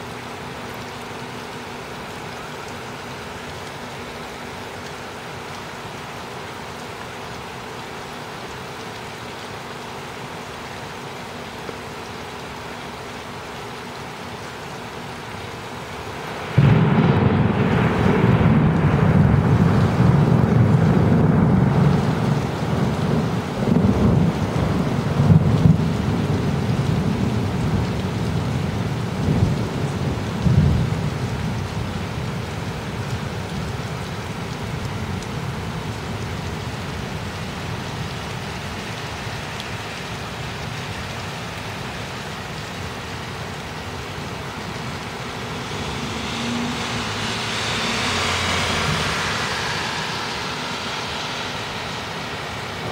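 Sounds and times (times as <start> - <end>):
rain hissing: 0.0 - 52.9
thunder rumbling: 16.2 - 33.7, 43.0 - 52.9.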